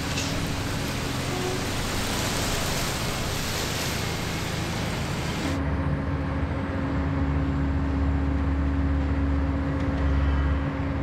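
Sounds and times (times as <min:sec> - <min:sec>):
water splashing: 0:00.0 - 0:05.6
crane machinery drone: 0:00.0 - 0:11.0.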